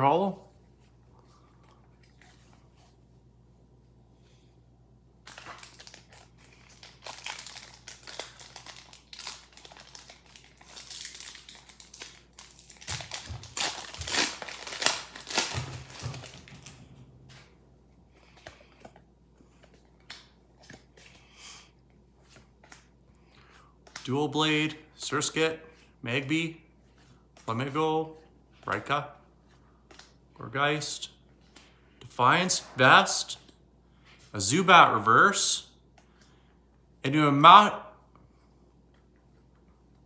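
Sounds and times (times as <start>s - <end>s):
foil wrapper crinkling and ripping: 5.2s - 16.8s.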